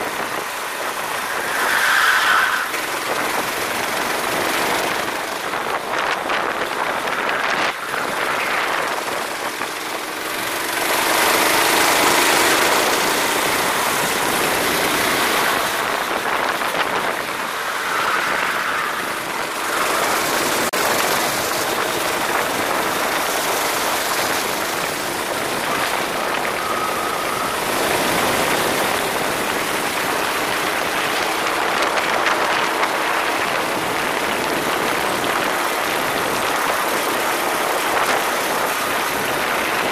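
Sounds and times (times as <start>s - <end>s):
loud rushing noise: 0.0s - 30.6s
kart engine: 0.0s - 39.9s.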